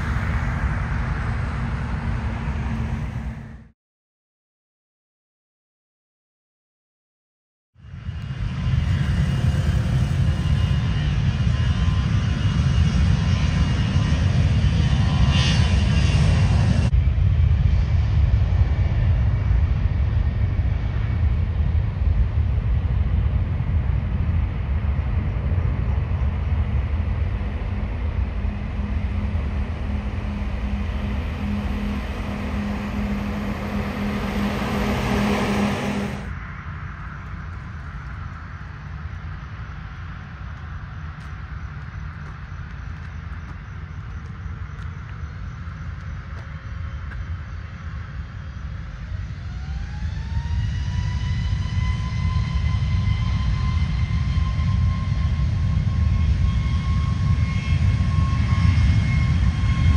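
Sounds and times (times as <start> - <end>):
jet engines rumbling: 0.0 - 3.7, 7.8 - 59.9.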